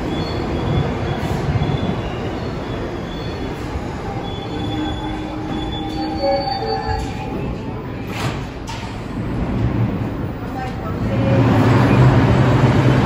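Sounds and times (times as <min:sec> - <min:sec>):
faint high squealing tones: 0:00.0 - 0:08.1
subway train rumble and hum: 0:00.0 - 0:13.0.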